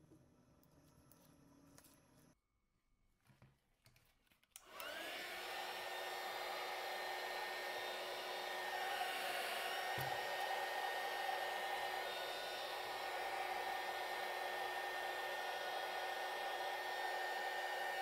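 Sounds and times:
heat gun fan blowing: 0:04.6 - 0:18.0.

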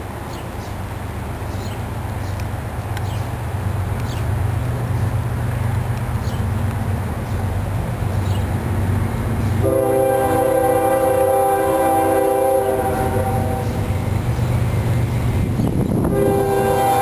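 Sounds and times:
diesel engines rumbling: 0:00.0 - 0:17.0
locomotive air horn blasts: 0:09.6 - 0:14.0, 0:16.1 - 0:17.0.

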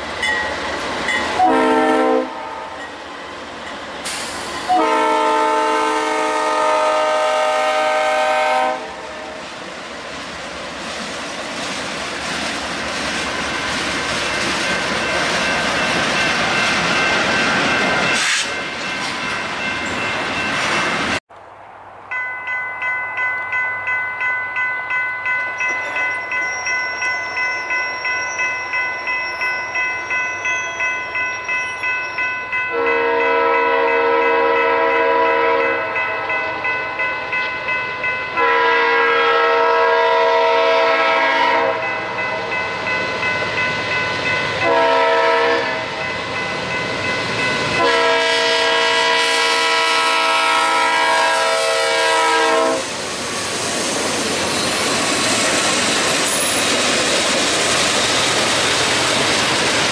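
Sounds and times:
railroad crossing bell clanging: 0:00.0 - 0:09.4, 0:13.3 - 0:21.2, 0:22.1 - 0:59.9
freight train rumbling past: 0:00.0 - 0:59.9
locomotive air horn blasts: 0:01.4 - 0:02.8, 0:04.7 - 0:09.4, 0:32.7 - 0:36.0, 0:38.4 - 0:41.9, 0:44.6 - 0:46.0, 0:47.8 - 0:53.0.

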